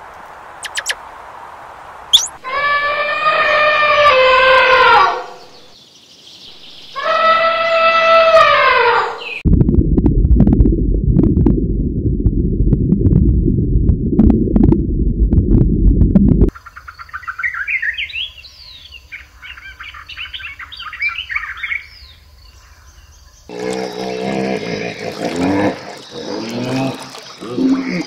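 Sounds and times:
sharp underwater clicks: 0.6s - 1.0s
small birds chirping trills: 0.6s - 1.0s, 2.2s - 2.4s, 5.3s - 8.3s, 16.5s - 28.0s
underwater low rumble: 9.4s - 16.5s.

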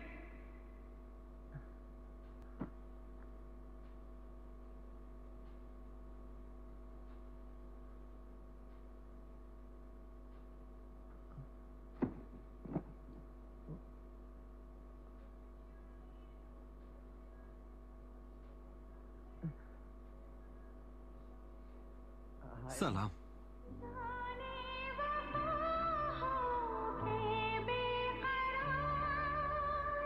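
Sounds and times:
low steady hum: 0.0s - 30.0s
short knocks: 12.0s - 13.8s.

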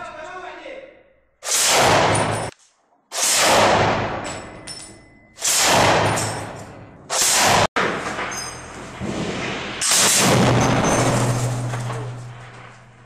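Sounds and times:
machine gun firing with echo: 5.4s - 6.5s, 7.1s - 8.2s, 9.8s - 12.8s.

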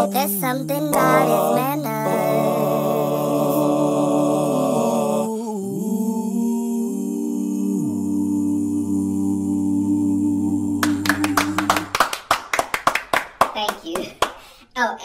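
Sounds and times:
person singing long notes: 0.0s - 12.0s.

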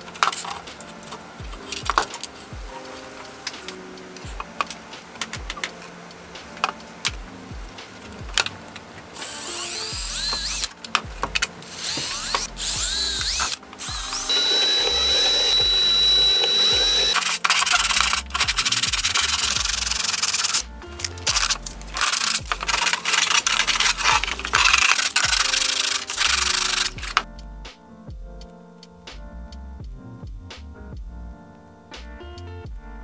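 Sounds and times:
cordless drill whining: 9.2s - 10.7s, 11.6s - 20.6s
sandpaper rubbing plastic: 21.2s - 27.2s.

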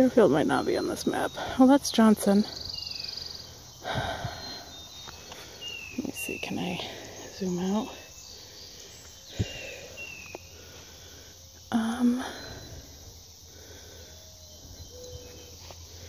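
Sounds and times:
faint high chirps: 13.8s - 16.0s.

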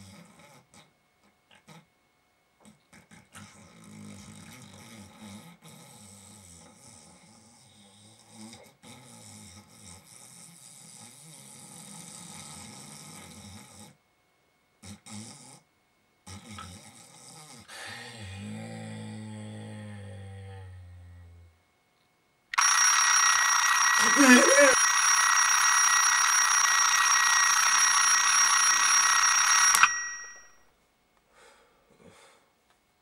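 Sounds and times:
person snoring: 3.0s - 14.0s, 16.3s - 21.5s, 24.0s - 24.8s.

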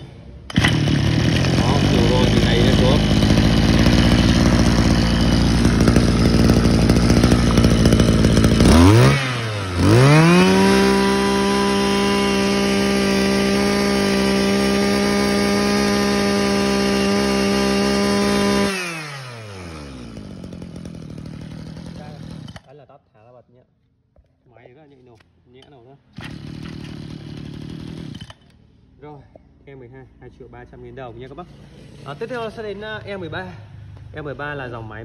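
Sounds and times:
brush cutter engine revving: 0.4s - 22.7s, 26.1s - 28.6s.

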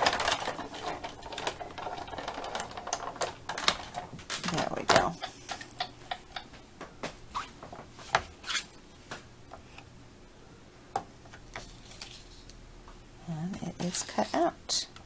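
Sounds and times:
plastic plates clicking and tapping: 0.0s - 7.2s.

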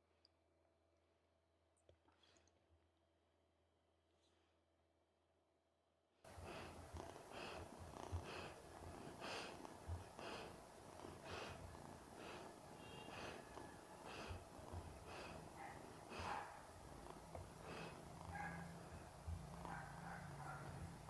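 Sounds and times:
dog breathing softly: 6.3s - 21.0s.

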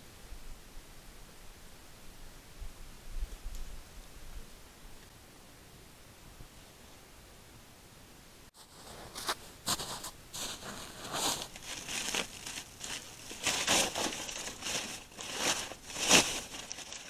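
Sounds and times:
wrapper crinkling and tearing: 10.4s - 17.0s.

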